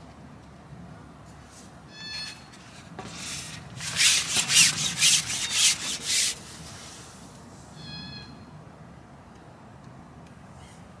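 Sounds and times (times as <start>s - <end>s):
fishing pole rasping against hands: 3.0s - 6.4s.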